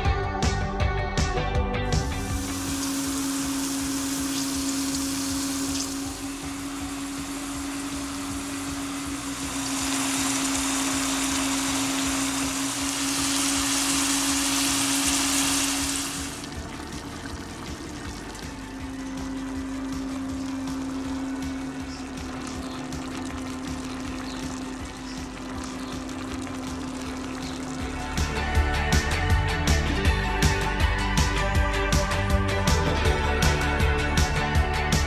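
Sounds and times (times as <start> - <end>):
meat sizzling in a pot: 2.0 - 29.2
steady low hum: 2.0 - 34.8.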